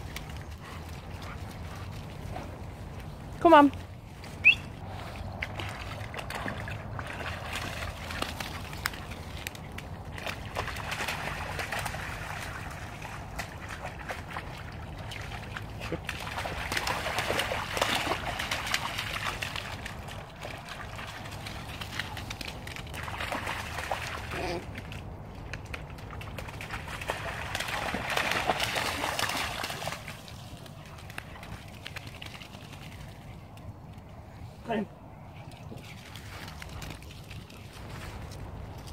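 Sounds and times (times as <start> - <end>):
puppy splashing through water: 0.0 - 38.9.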